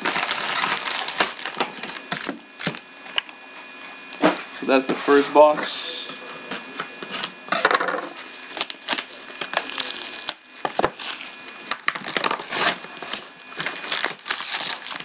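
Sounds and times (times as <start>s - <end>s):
cardboard and wrappers crackling: 0.0s - 3.4s, 8.3s - 15.0s.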